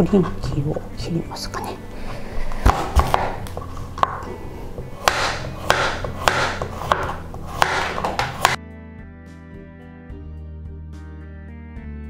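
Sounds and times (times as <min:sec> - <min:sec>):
knife rasping through pumpkin: 0:02.0 - 0:08.6
knife knocking on cutting board: 0:02.6 - 0:04.2, 0:05.0 - 0:08.6.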